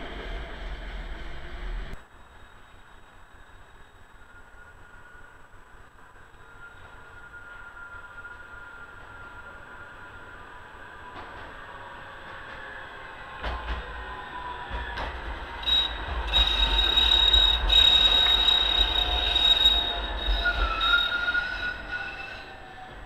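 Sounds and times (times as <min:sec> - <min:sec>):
tram passing on rails: 0:00.0 - 0:23.0
high wheel squeal: 0:14.0 - 0:23.0.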